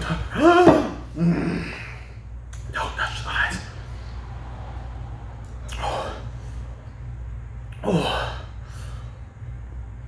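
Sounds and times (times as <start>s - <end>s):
man groaning: 0.0s - 2.0s, 7.8s - 8.5s.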